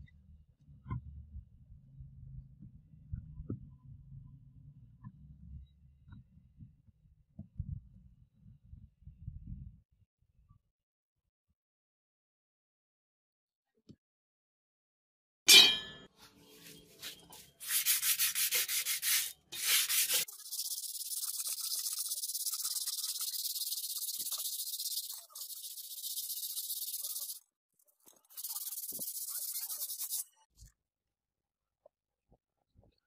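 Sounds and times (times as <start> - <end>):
sandpaper rubbing metal blade: 16.6 - 27.4, 28.2 - 30.3.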